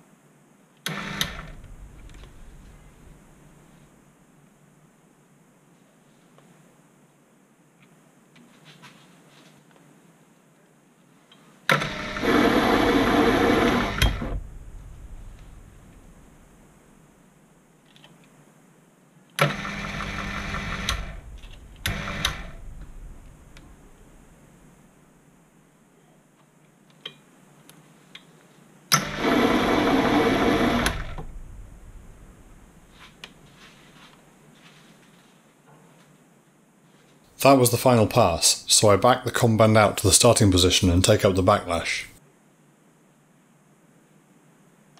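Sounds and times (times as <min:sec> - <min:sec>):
lathe motor running: 0:00.9 - 0:03.3, 0:11.7 - 0:16.5, 0:19.4 - 0:24.3, 0:29.0 - 0:32.7.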